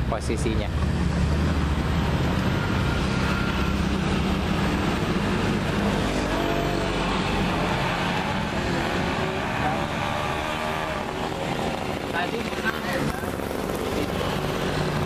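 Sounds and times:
vehicle engine droning: 0:00.0 - 0:15.0.

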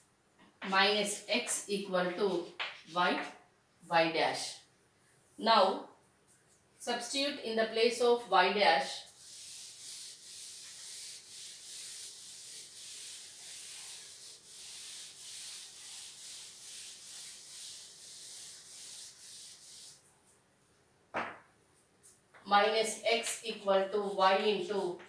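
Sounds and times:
duster scrubbing on chalkboard: 0:08.8 - 0:20.4.

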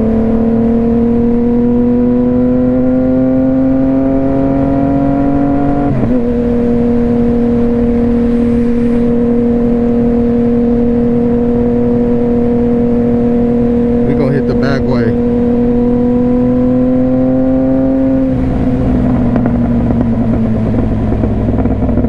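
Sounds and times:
motorcycle engine: 0:00.0 - 0:22.0
wind noise: 0:04.2 - 0:13.8.

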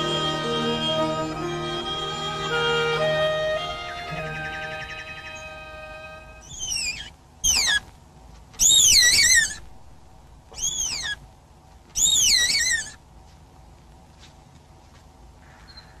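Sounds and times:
deer fawn bleating: 0:00.0 - 0:07.9, 0:08.6 - 0:09.7, 0:10.5 - 0:11.2, 0:12.0 - 0:13.0.

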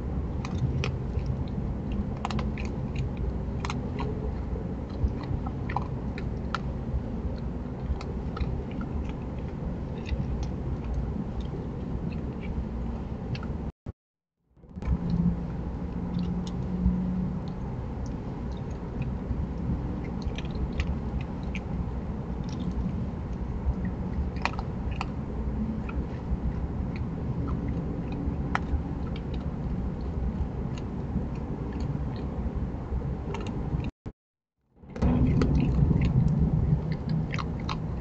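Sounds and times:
microphone hiss and rumble: 0:00.0 - 0:13.7, 0:14.7 - 0:33.9, 0:34.9 - 0:38.0
raccoon crunching dry food: 0:00.4 - 0:11.6, 0:16.1 - 0:32.2, 0:35.0 - 0:38.0.

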